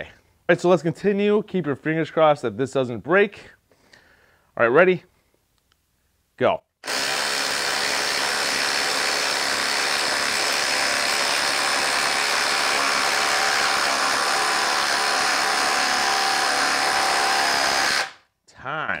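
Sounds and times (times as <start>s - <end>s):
impact driver hammering: 6.8s - 18.2s.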